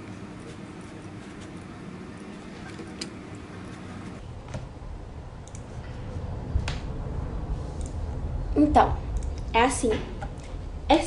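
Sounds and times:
steady low hum: 0:00.0 - 0:11.0
computer mouse clicks: 0:05.4 - 0:05.6.

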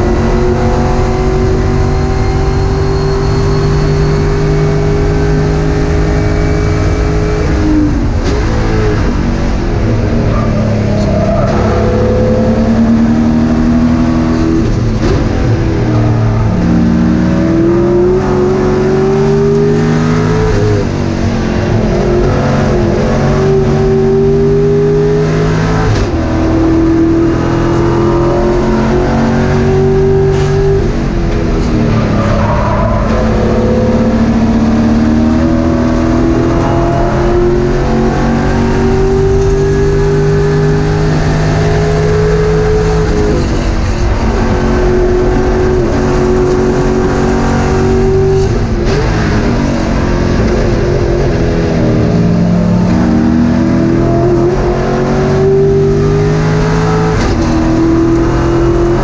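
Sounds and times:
race car engine revving: 0:00.0 - 0:59.0.

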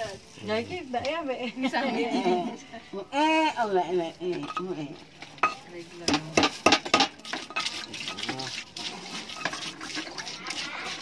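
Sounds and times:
stone pestle grinding in mortar: 0:06.1 - 0:11.0.

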